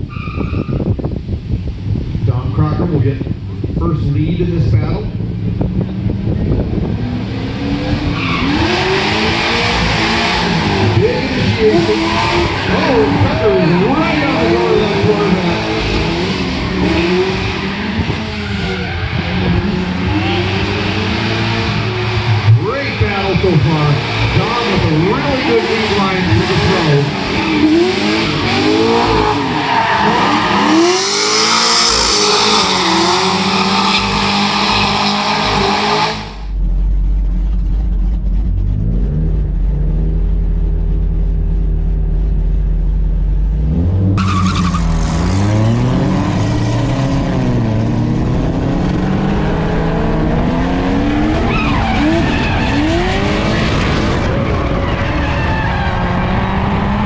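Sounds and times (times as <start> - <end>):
tires squealing: 0.0 - 1.1, 5.7 - 36.5, 43.5 - 48.0, 48.8 - 57.0
car engines revving: 0.0 - 57.0
car engine idling: 36.3 - 45.9.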